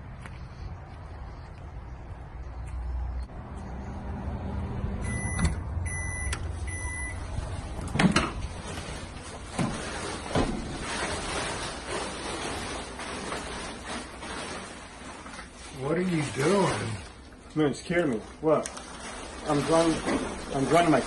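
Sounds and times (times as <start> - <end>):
short electronic beeps: 5.0 - 7.2
rustling: 7.3 - 21.0.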